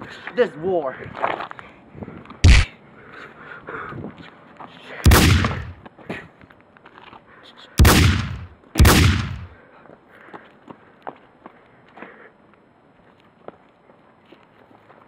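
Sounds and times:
gunshots: 2.4 - 2.7, 5.1 - 5.8, 7.8 - 9.6.

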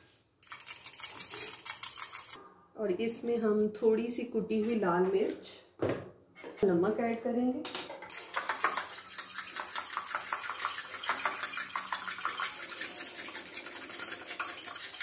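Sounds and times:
spoon beating egg in glass bowl: 0.4 - 2.4, 8.1 - 15.0.

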